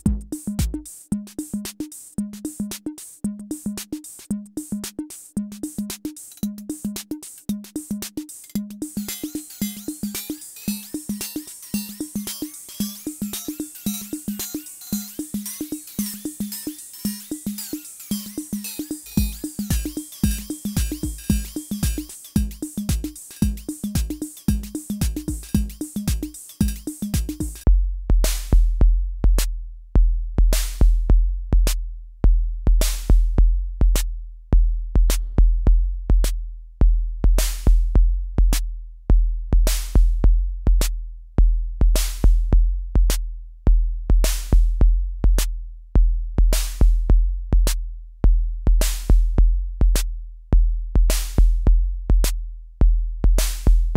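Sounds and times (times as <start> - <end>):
drum machine rhythm pattern: 0.0 - 27.6.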